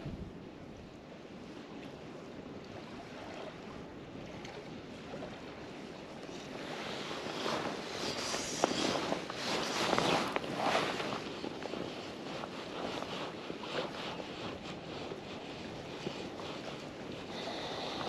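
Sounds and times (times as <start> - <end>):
wind: 0.0 - 18.0
small waves lapping: 1.3 - 18.0
rustling footsteps: 7.4 - 13.0.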